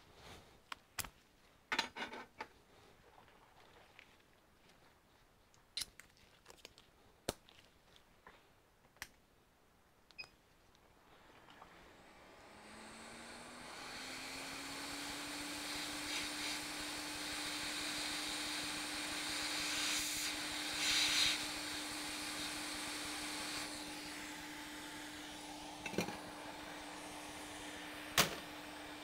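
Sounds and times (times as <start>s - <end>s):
hot air station fan whine: 11.7s - 29.0s
hiss of air: 13.8s - 29.0s.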